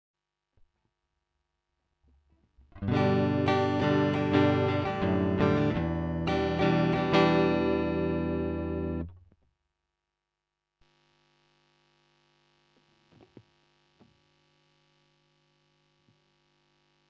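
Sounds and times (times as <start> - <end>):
distorted electric guitar riff: 2.8 - 9.1.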